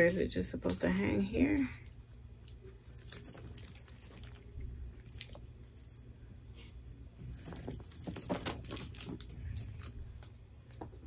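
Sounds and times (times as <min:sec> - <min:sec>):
metal chain clinking and rustling: 0:02.4 - 0:10.0.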